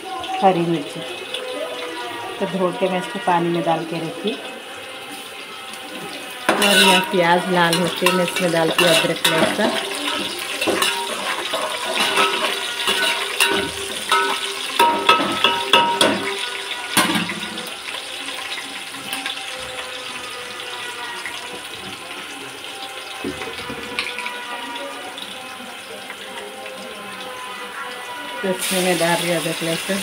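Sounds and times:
metal utensil scraping a pot: 6.4 - 16.4.

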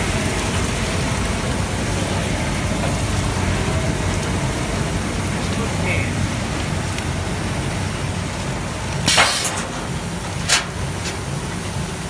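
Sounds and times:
short hissing bursts: 9.1 - 9.7.

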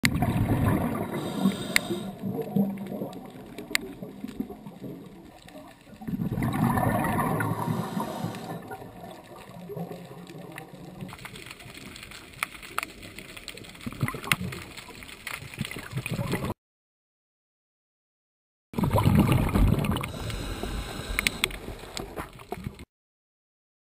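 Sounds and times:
underwater bubbles gurgling: 0.0 - 16.5, 18.8 - 22.8
sharp underwater clicks: 1.1 - 4.4, 19.1 - 22.8.

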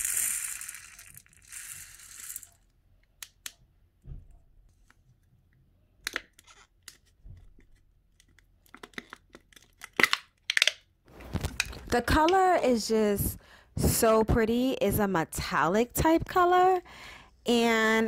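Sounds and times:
plastic beads pouring into a lid: 0.0 - 2.6.

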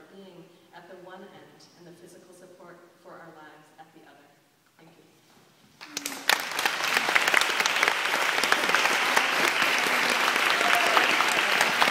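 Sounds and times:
audience applauding: 5.8 - 11.9.

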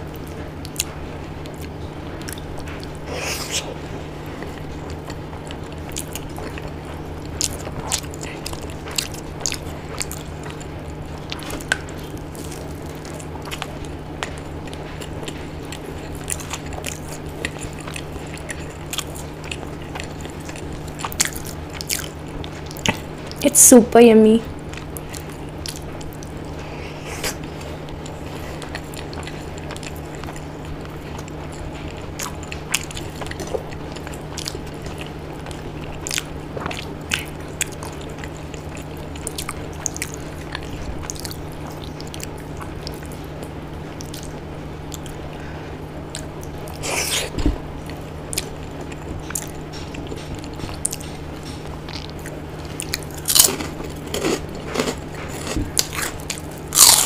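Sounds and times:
steady low hum: 0.0 - 57.0
wet chewing: 0.1 - 23.4, 24.6 - 57.0
crunchy bites: 46.1 - 57.0.

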